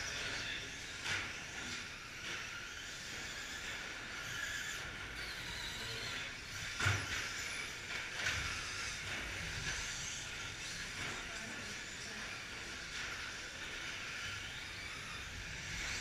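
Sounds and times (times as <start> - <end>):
toy car motors whining: 0.0 - 16.0.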